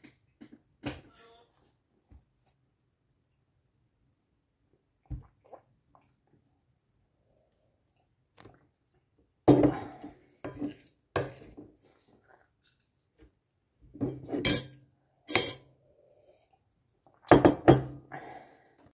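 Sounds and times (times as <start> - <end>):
cutlery clinking on ceramic bowl: 14.1 - 15.7.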